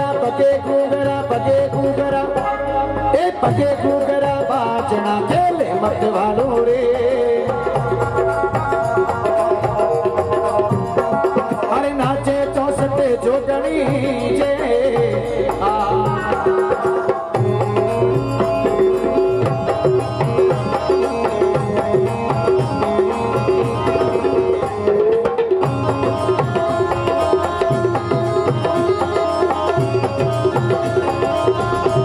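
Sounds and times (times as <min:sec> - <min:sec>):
hand drums beating: 0:03.2 - 0:32.0
sustained melody: 0:07.7 - 0:32.0.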